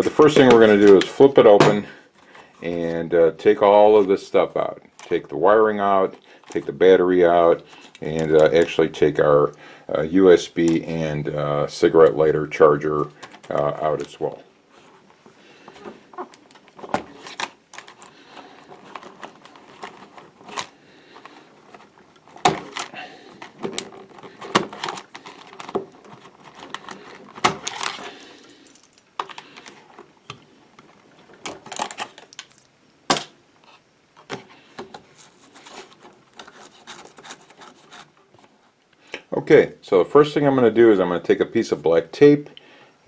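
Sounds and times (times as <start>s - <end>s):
rustling: 10.3s - 32.7s, 33.6s - 38.8s.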